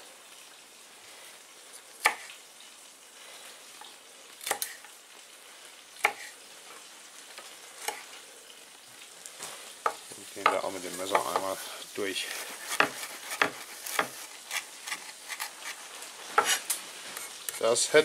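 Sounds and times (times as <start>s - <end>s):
faint steady hiss: 0.0s - 18.0s
knife chopping on wooden board: 2.0s - 2.3s, 4.4s - 4.8s, 6.0s - 6.3s, 9.8s - 11.5s, 12.4s - 15.8s, 16.4s - 16.6s.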